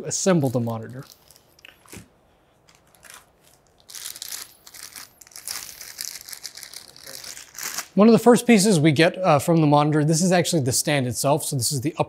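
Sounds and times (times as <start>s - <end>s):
plastic bag crinkling: 0.2s - 8.0s.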